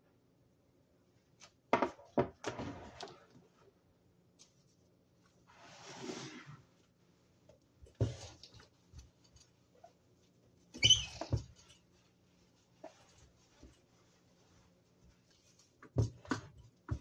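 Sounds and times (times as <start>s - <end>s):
sponge squeaking: 10.7s - 15.6s.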